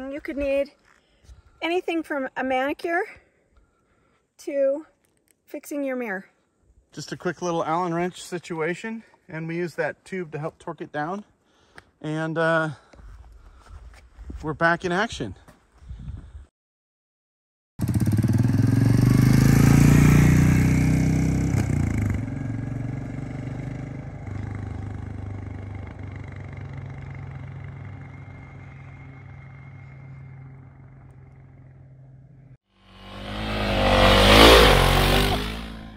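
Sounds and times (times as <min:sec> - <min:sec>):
motorcycle engine pulling away: 0:17.8 - 0:32.2, 0:32.9 - 0:35.9
loud whooshing sound effect: 0:33.0 - 0:35.9.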